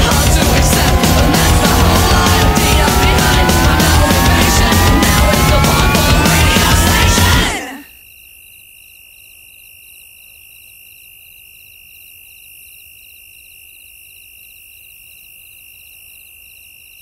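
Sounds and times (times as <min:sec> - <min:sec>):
high-pitched electronic tone: 0:00.0 - 0:07.8.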